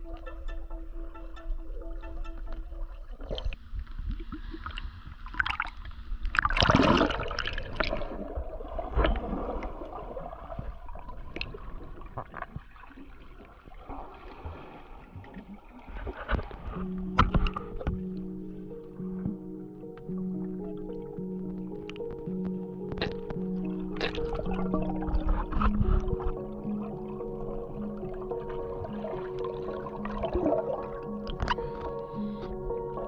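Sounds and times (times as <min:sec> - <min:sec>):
muffled underwater water movement: 0:00.0 - 0:33.0
clicks: 0:21.4 - 0:24.4.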